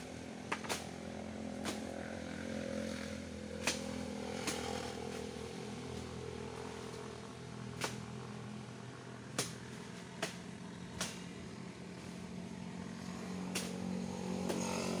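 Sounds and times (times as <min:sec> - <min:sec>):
steady engine drone: 0:00.0 - 0:15.0
sharp chopping into wood: 0:03.6 - 0:04.6, 0:09.4 - 0:10.4.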